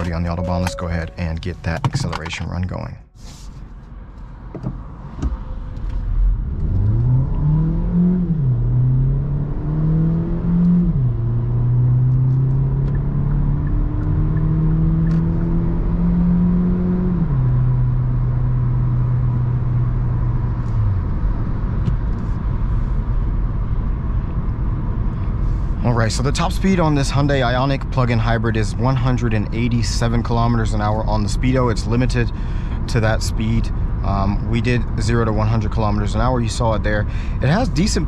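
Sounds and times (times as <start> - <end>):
road and tyre rumble: 0.0 - 38.0
car engine accelerating: 5.4 - 25.4.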